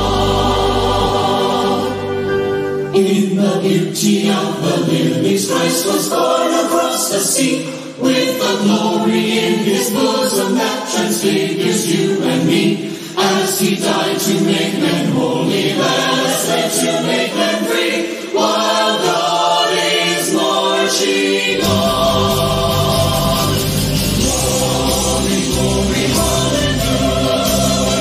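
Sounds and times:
deep bass layer: 0.0s - 2.2s, 21.6s - 28.0s
group singing in harmony: 0.0s - 28.0s.

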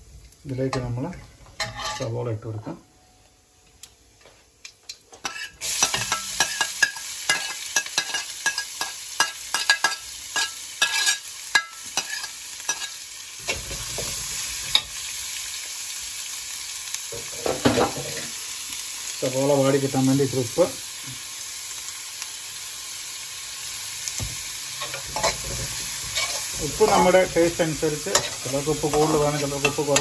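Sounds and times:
metal spoon scraping pan: 1.6s - 2.2s, 5.2s - 13.9s, 24.8s - 30.0s
onion sizzling in hot oil: 4.9s - 30.0s.

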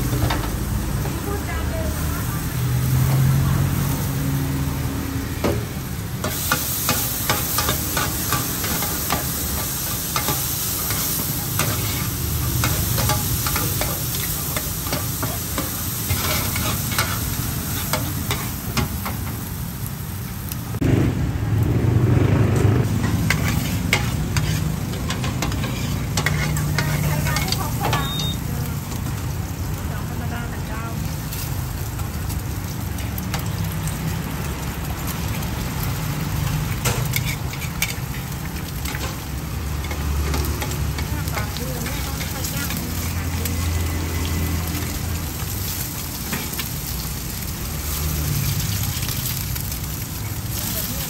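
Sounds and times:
food sizzling: 0.0s - 51.0s
metal spatulas scraping griddle: 11.6s - 18.5s, 22.9s - 28.2s, 36.8s - 38.1s.

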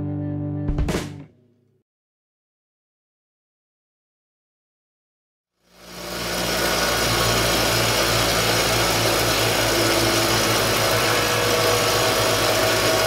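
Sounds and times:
bench grinder motor running: 5.6s - 13.0s.

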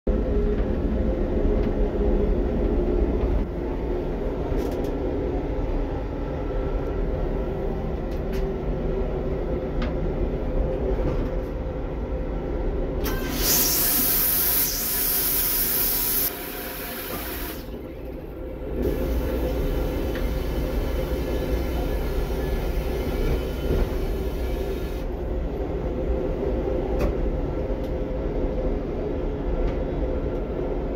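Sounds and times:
moving train rumble: 0.1s - 30.9s
train toilet flushing: 13.0s - 25.2s.

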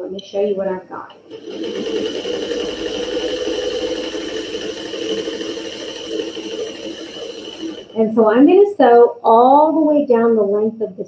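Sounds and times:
electric sewing machine running: 1.2s - 8.5s.

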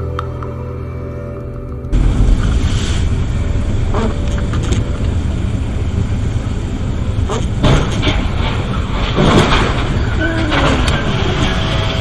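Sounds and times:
low road and engine rumble: 0.0s - 12.0s
rain hissing on windshield: 2.0s - 6.8s.

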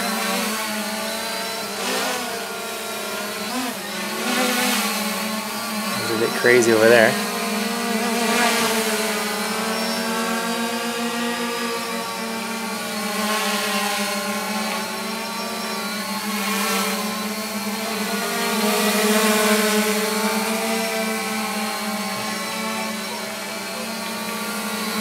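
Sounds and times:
drone propellers humming: 0.8s - 16.3s, 19.7s - 25.0s.

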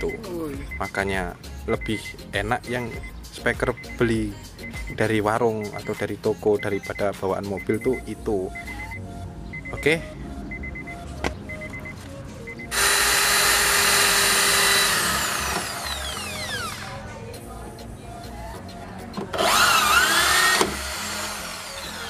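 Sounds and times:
electric drill whining: 12.7s - 17.0s, 19.3s - 22.0s.

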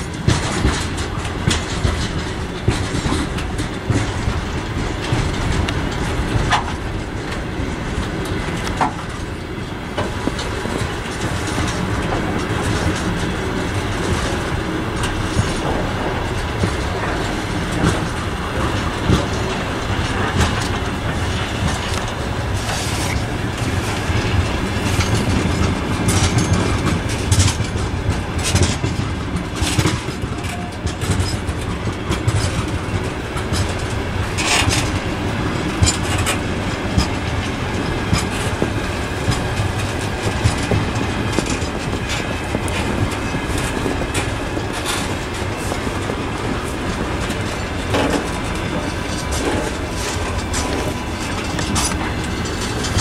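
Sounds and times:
clicks over rail joints: 0.0s - 53.0s
rumble of steel train wheels: 0.0s - 53.0s.

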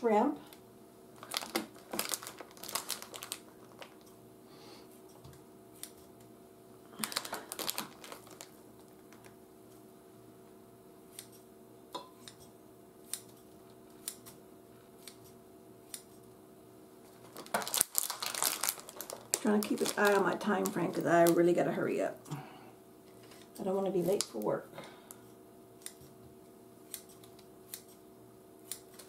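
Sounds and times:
scissors snipping: 5.8s - 6.1s, 11.1s - 11.4s, 13.1s - 14.4s, 15.0s - 16.2s, 26.9s - 28.0s, 28.6s - 29.0s.

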